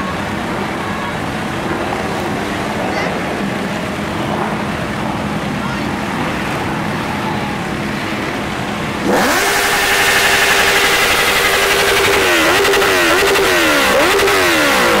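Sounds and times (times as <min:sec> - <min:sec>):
motorcycle engine revving: 0:09.0 - 0:15.0.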